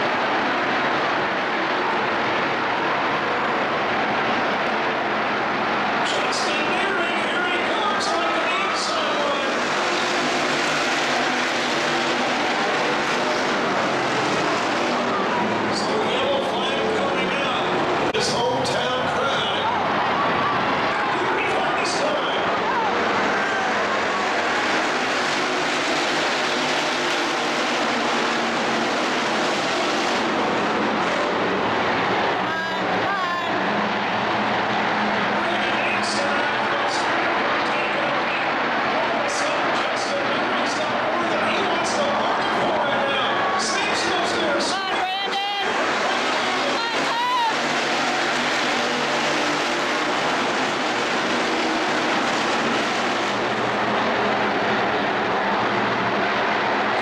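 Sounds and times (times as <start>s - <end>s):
race car engines racing: 0.0s - 57.0s.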